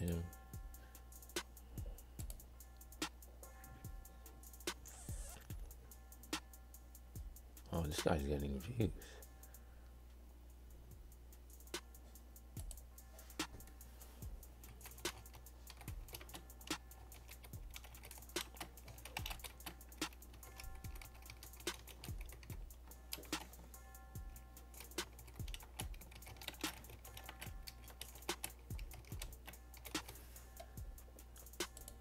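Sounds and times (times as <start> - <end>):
faint music: 0.0 - 32.0
typing on computer keyboard: 14.8 - 23.5, 24.8 - 30.2.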